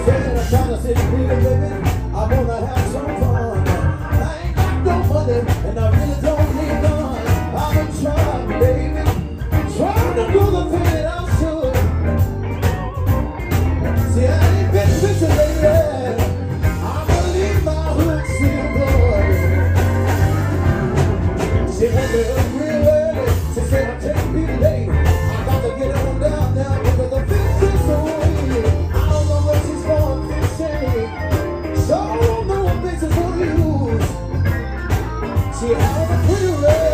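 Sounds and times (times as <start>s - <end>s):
man singing into microphone: 0.0s - 12.1s, 14.0s - 34.5s, 35.3s - 36.9s
live blues band playing: 0.0s - 36.9s
strong bass line: 0.0s - 36.9s.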